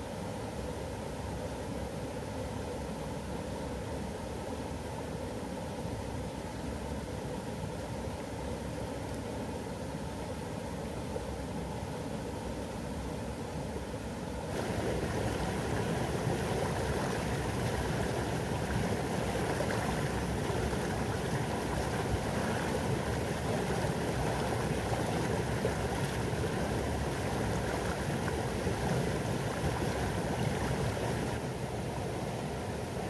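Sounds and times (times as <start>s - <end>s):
running water rushing: 14.5s - 33.0s.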